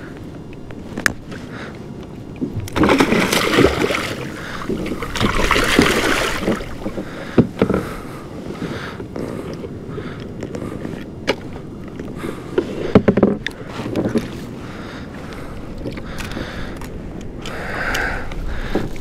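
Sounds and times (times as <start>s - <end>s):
water splashing: 2.5s - 7.2s.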